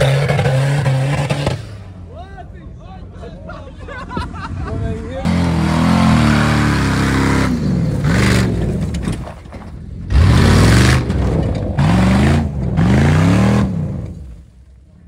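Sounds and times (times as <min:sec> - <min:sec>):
suv engine revving: 0:00.0 - 0:01.9, 0:05.3 - 0:09.1, 0:10.1 - 0:14.4.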